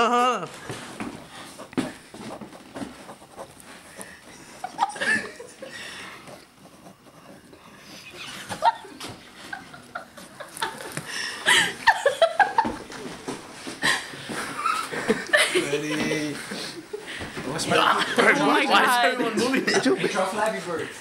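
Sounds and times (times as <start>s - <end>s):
young people laughing: 4.4s - 5.8s, 8.2s - 13.0s, 13.8s - 20.4s.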